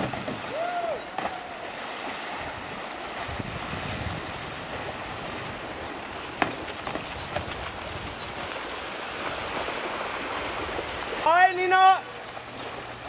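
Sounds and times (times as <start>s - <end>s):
water washing: 0.0s - 13.0s
wind noise on microphone: 2.4s - 11.2s.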